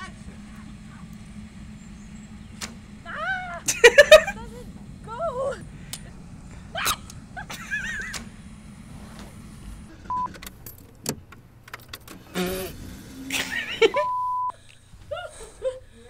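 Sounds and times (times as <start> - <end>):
clicks: 0.0 - 3.1, 5.8 - 12.7
woman laughing: 3.1 - 8.3, 13.3 - 16.0
steady beep tone: 10.1 - 10.4, 13.9 - 14.6.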